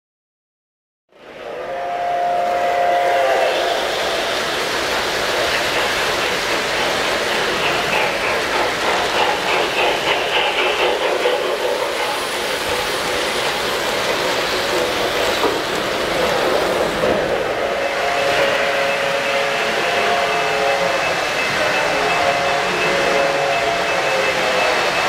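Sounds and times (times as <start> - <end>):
model train wheels rumbling on rail: 1.2 - 25.0
rapid clicking clatter: 4.6 - 17.2.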